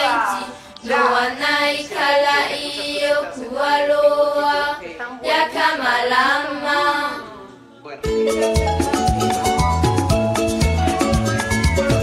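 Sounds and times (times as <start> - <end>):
people singing unaccompanied: 0.0 - 7.7.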